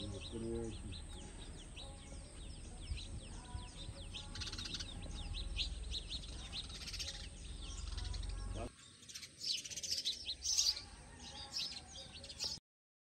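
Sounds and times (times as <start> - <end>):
sparrows chirping: 0.0 - 12.6.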